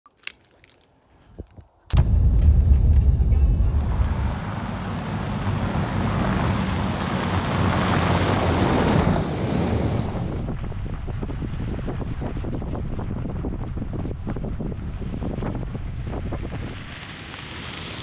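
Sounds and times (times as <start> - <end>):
wind: 0.0 - 18.0
tyres on gravel road: 0.1 - 13.9, 16.0 - 18.0
truck engine rumble: 1.9 - 13.8.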